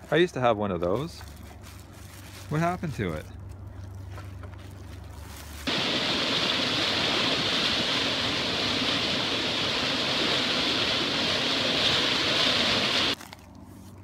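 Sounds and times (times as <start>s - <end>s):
river rapids rushing: 5.7s - 13.2s.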